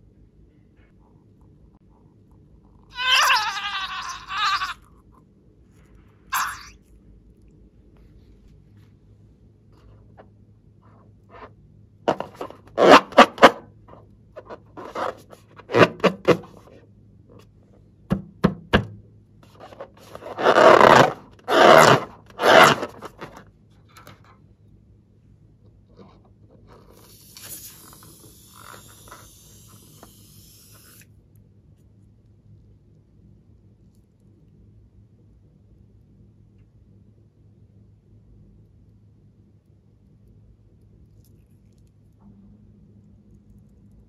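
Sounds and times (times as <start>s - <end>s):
rubber balloon squeaking: 2.9s - 4.9s, 6.3s - 6.8s, 12.1s - 13.6s, 14.8s - 16.6s, 19.7s - 23.4s, 27.0s - 31.0s.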